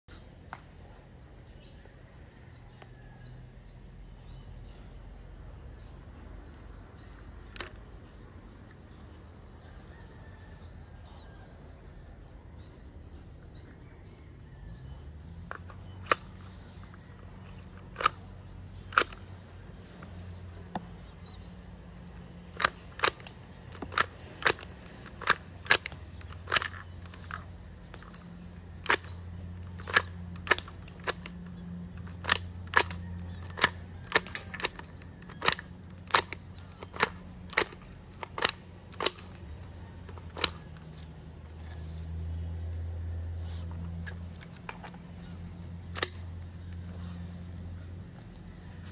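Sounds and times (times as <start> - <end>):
paper rifle mechanism clicks: 6.4 - 8.8, 15.4 - 20.9, 22.0 - 42.1, 43.5 - 47.1.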